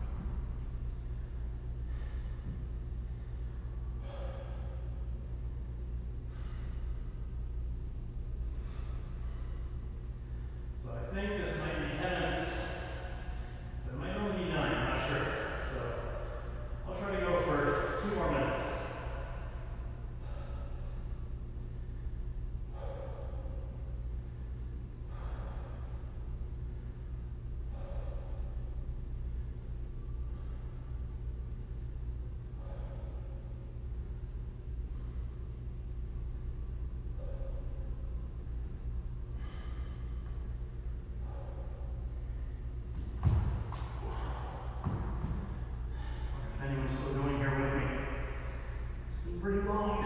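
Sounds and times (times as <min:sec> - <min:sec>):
man breathing hard: 0:00.0 - 0:46.7
low steady hum: 0:00.0 - 0:50.0
man breathing out hard: 0:01.7 - 0:05.4, 0:06.2 - 0:07.3, 0:18.7 - 0:21.2, 0:22.6 - 0:26.6, 0:43.2 - 0:46.5.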